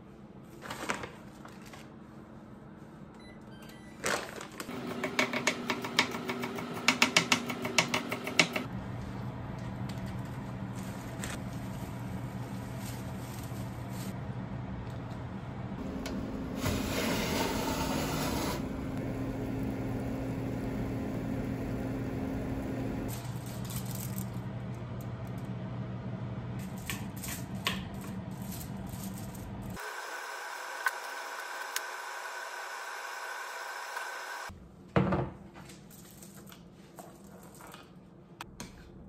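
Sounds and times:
steady low hum: 8.7s - 26.9s.

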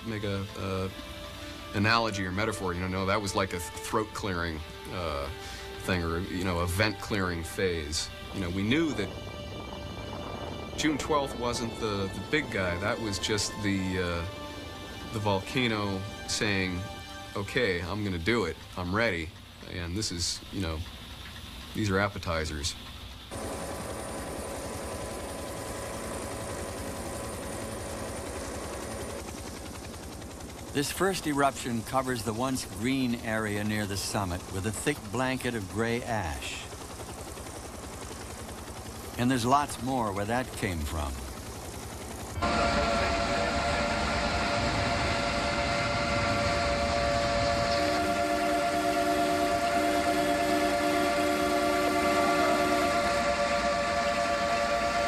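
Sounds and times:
engine running: 0.0s - 55.0s
thin whining tones: 0.0s - 55.0s
low siren blasts: 0.1s - 19.2s, 42.3s - 55.0s.

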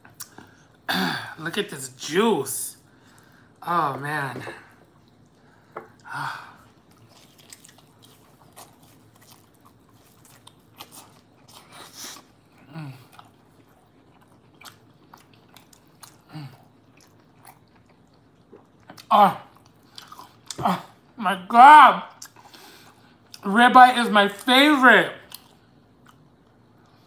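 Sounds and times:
chewing with wet mouth sounds: 4.7s - 21.2s, 22.1s - 23.5s, 25.2s - 27.0s.

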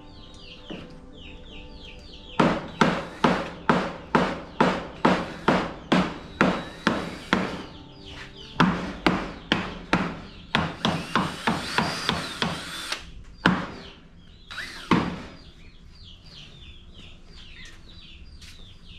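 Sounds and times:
small birds chirping: 0.0s - 18.9s
sharp knocks: 2.4s - 7.8s, 8.6s - 12.7s.

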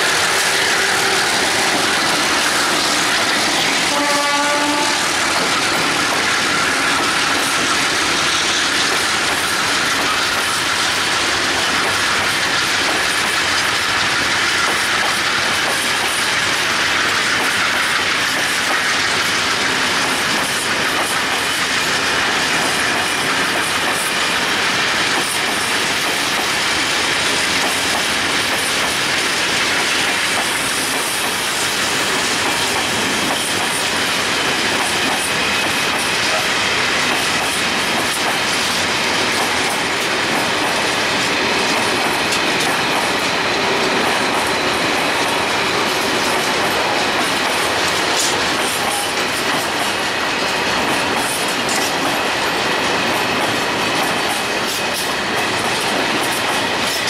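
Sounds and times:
diesel locomotive engines running: 0.0s - 57.0s
train wheels clattering on rails: 0.0s - 57.0s
train horn blast: 3.8s - 5.1s.

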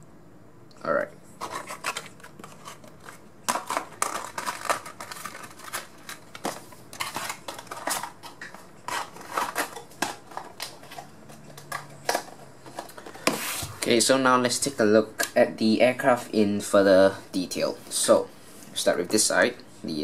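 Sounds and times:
packaging crinkling and rustling: 1.4s - 13.9s.

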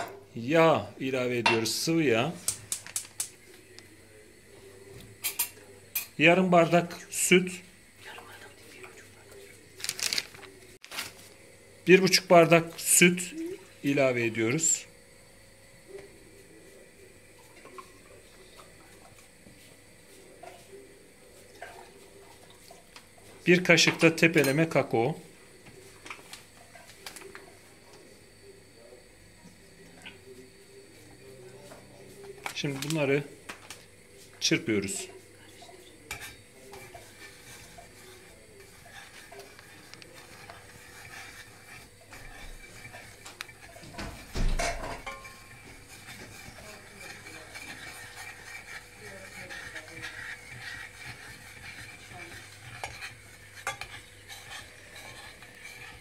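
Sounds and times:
whisk stirring in a pot: 11.9s - 14.9s, 15.8s - 28.0s, 28.8s - 56.0s
whisk clicking against pot: 36.1s - 56.0s.

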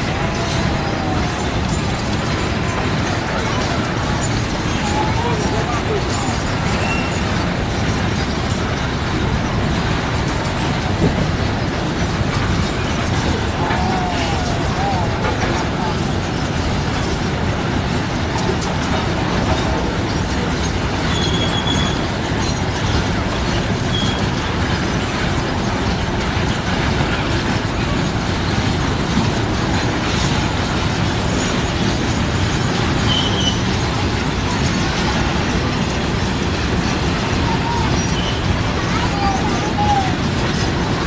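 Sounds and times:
freight train wheels rumbling: 0.0s - 41.0s
high wheel squeals: 6.2s - 7.4s, 21.0s - 23.0s, 23.8s - 24.4s, 33.0s - 33.9s, 36.8s - 40.7s.

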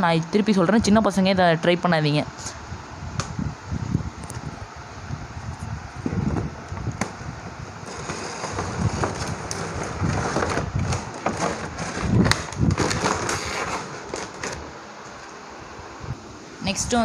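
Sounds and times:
knocks and scrapes: 7.8s - 14.7s
cardboard and plastic rustling: 7.8s - 15.4s.

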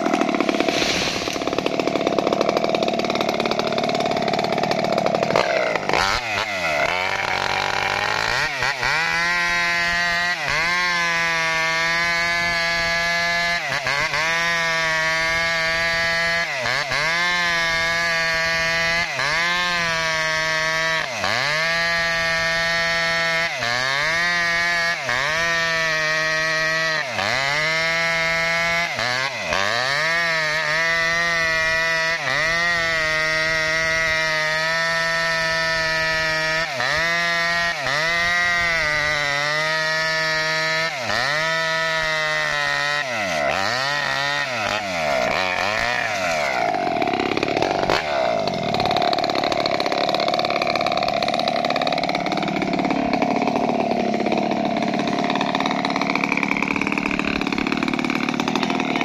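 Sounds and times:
chainsaw cutting wood: 0.0s - 59.0s.

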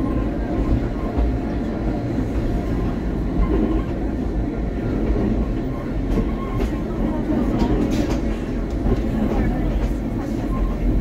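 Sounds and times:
rack railway train rumbling: 0.0s - 11.0s.

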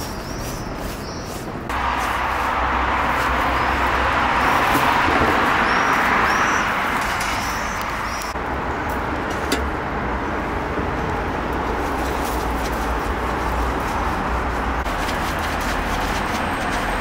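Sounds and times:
hands rubbing meat: 0.0s - 4.0s
street traffic rumble: 0.0s - 17.0s.

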